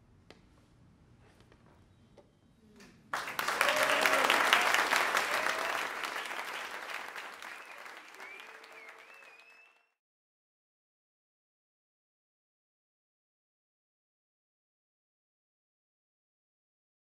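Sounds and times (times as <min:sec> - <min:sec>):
audience applause: 0:03.1 - 0:09.9.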